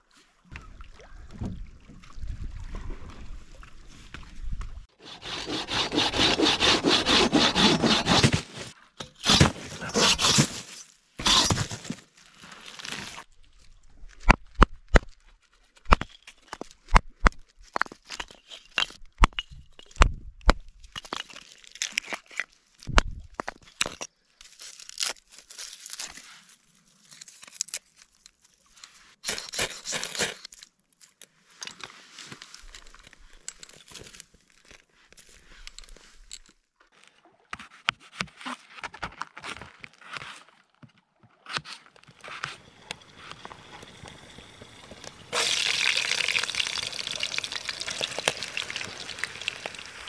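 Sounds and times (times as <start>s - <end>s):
fish remains crunching and tearing: 45.3s - 50.0s.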